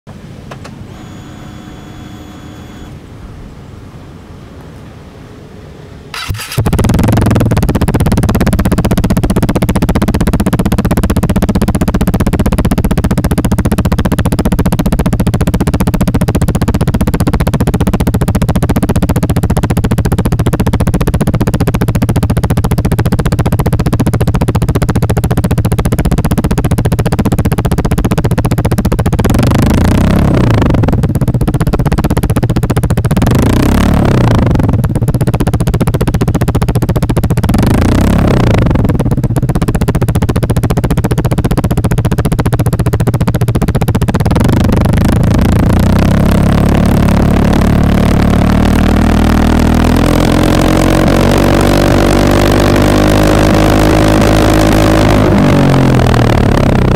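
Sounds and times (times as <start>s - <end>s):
scooter engine idling and revving: 0.1s - 3.0s, 4.7s - 56.9s.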